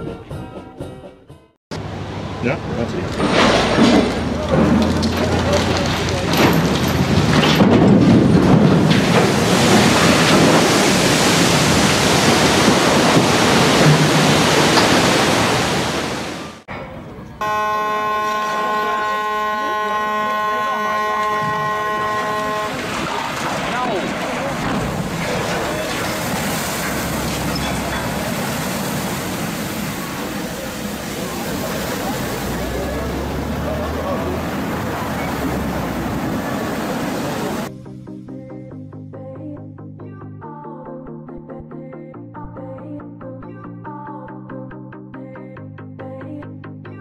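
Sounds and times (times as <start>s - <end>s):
water rushing: 1.8s - 7.5s, 8.3s - 16.7s, 17.6s - 37.7s
wave surging over bank: 8.9s - 16.6s, 18.2s - 37.7s.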